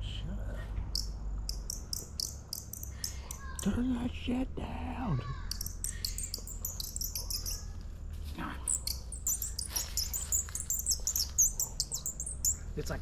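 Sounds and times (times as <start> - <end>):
high-pitched bird-like chirps: 0.9 - 3.8, 5.5 - 7.8, 8.6 - 12.7.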